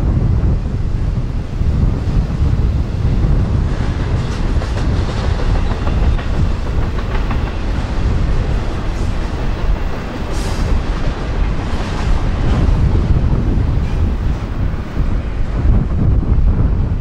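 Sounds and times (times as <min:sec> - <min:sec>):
train low rumble: 0:00.0 - 0:17.0
train wheels clicking over rail joints: 0:03.5 - 0:15.5.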